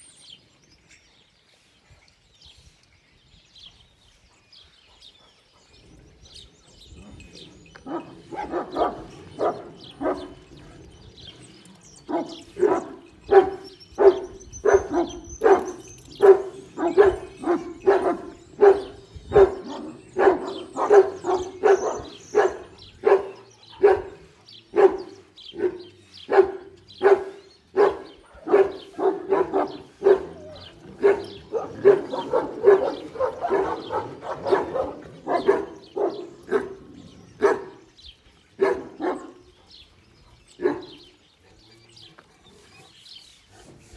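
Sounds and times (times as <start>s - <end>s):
dog barking: 7.9s - 10.4s, 12.1s - 36.8s, 37.4s - 37.8s, 38.6s - 39.4s, 40.6s - 41.0s.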